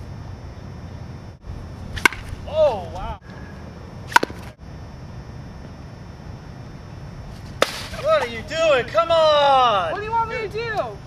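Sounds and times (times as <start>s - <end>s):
bat cracking a baseball: 1.9s - 3.0s, 4.0s - 4.6s, 7.4s - 8.2s.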